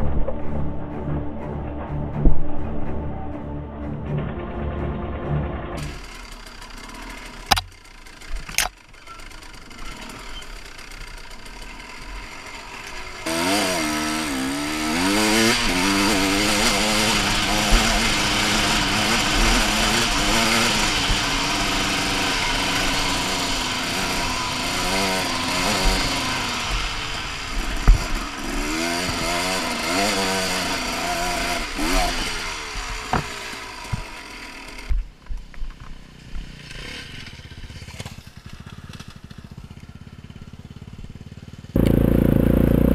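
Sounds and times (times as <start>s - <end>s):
motorcycle engine revving: 5.2s - 42.9s
sharp knocks: 33.0s - 34.2s.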